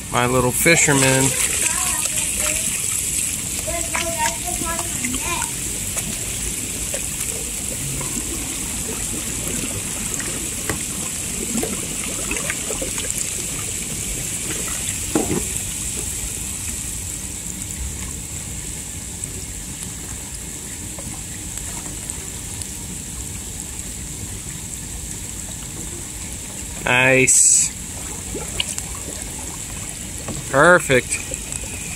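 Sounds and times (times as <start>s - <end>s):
water trickling and lapping: 0.0s - 31.9s
kayak paddle splashes: 0.1s - 16.4s.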